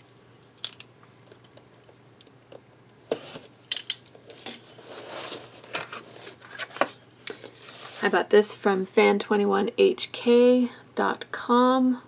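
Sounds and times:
cardboard scraping and rubbing: 4.7 - 7.0, 7.6 - 8.2.

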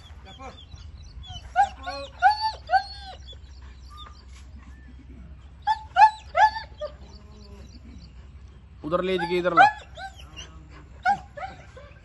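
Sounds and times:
dog whining yelps: 0.0 - 5.0, 5.6 - 8.1, 9.0 - 12.0.

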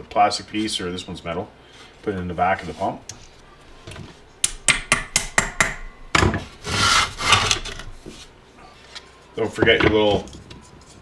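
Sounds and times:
scraping rub on wood: 6.6 - 8.4.

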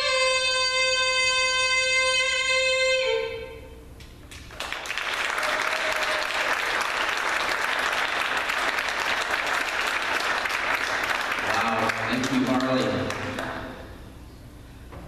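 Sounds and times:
audience applause: 4.5 - 13.6.

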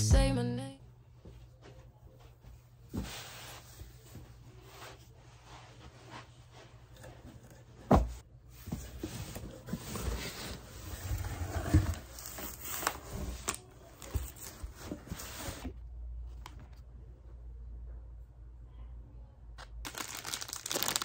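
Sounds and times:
paper packaging rustling: 19.9 - 21.0.

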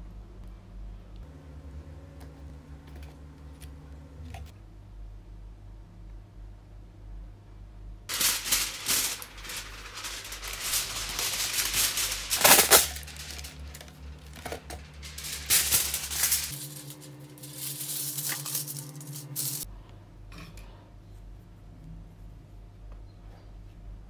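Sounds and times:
aluminium foil tearing: 8.1 - 19.7
foil crinkling and rustling: 8.1 - 19.7.

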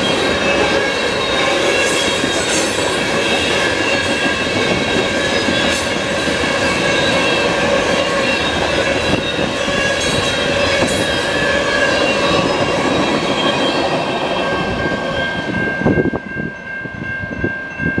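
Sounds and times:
high-pitched wheel squeal: 0.0 - 4.4, 6.8 - 14.0
train wheels rumbling on rails: 0.0 - 18.0.

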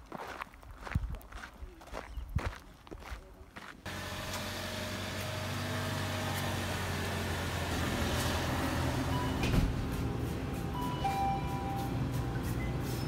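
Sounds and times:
low machinery hum: 3.9 - 13.0.

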